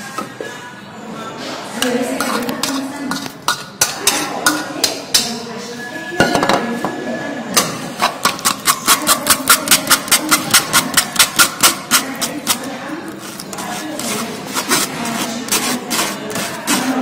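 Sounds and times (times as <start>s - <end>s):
spoon scraping on metal mesh sieve: 1.8s - 5.4s, 8.0s - 17.0s.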